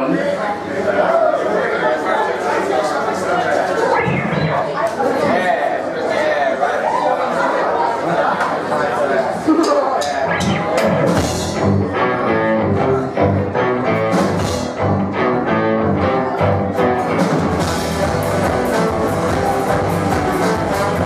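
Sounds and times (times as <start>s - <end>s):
crowd chatter: 0.0s - 21.0s
live band playing: 3.8s - 5.4s, 10.1s - 21.0s.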